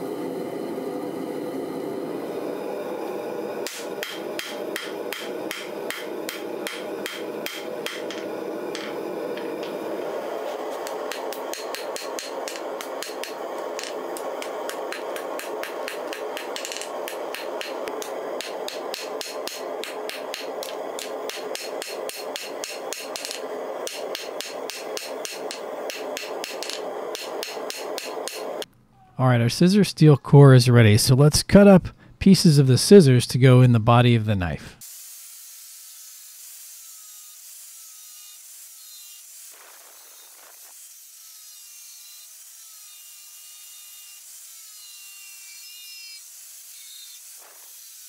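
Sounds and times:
hammer striking hot steel on anvil: 3.6s - 9.7s, 10.8s - 28.7s.

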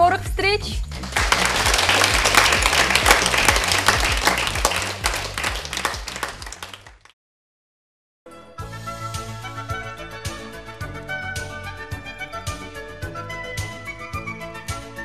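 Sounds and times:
low background music: 0.0s - 6.8s, 8.3s - 15.0s
studio audience applauding: 0.9s - 7.2s.

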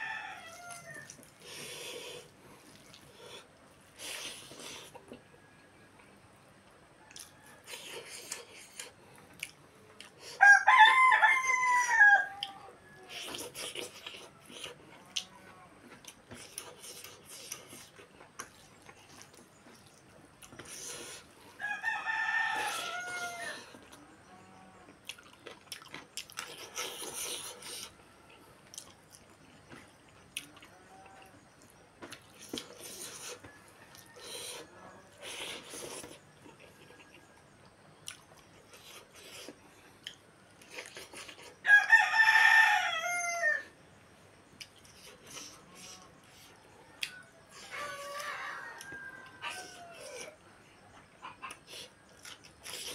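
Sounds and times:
rooster crowing: 0.0s - 1.2s, 10.4s - 13.4s, 21.6s - 23.9s, 33.3s - 35.3s, 41.6s - 43.8s, 45.8s - 50.4s
person eating and chewing: 0.5s - 5.2s, 7.1s - 10.4s, 12.4s - 21.5s, 24.9s - 37.3s, 38.0s - 41.6s, 44.6s - 50.4s, 51.2s - 52.9s.

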